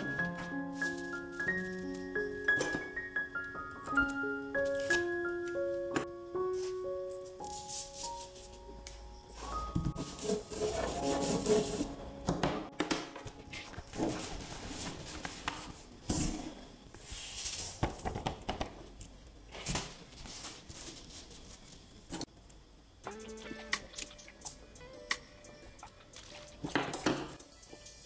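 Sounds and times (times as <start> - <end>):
sand scraping and rustling on paper: 7.4 - 8.6, 9.4 - 11.9, 17.0 - 17.8, 19.6 - 21.9.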